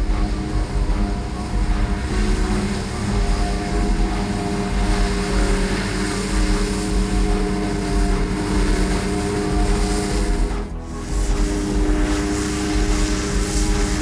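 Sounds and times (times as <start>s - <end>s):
forage harvester engine drone: 0.0s - 14.0s
tractor engine running: 0.0s - 14.0s.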